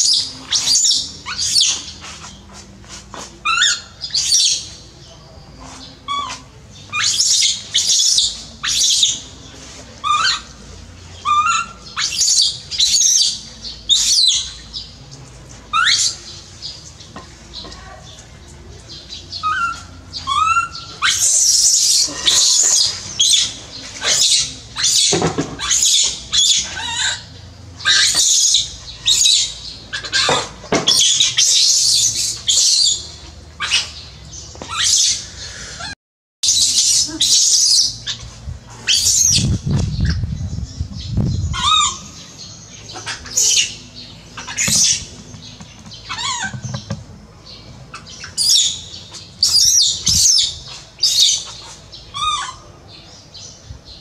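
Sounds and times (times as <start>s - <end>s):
baby monkey screaming: 3.4s - 4.6s, 6.1s - 9.2s, 10.0s - 10.5s, 11.2s - 14.5s, 15.7s - 16.2s, 19.4s - 33.0s, 33.6s - 34.0s, 34.7s - 35.2s, 41.3s - 42.3s, 42.9s - 43.8s, 44.4s - 45.1s, 46.0s - 47.0s, 47.9s - 52.8s.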